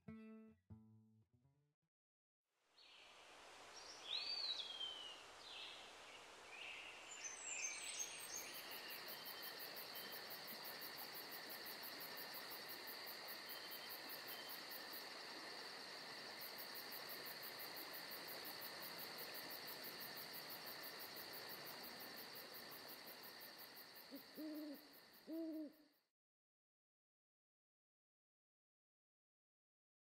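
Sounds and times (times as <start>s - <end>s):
crickets chirping: 3.3s - 26.0s.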